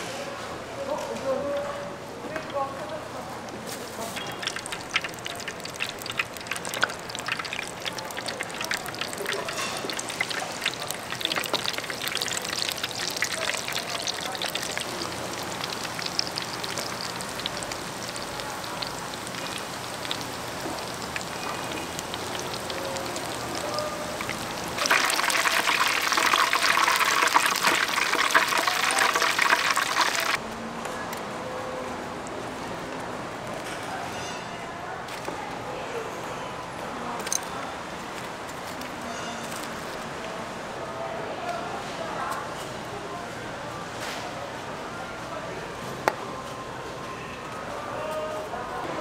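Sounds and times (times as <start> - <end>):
food deep-frying in oil: 3.8 - 30.4.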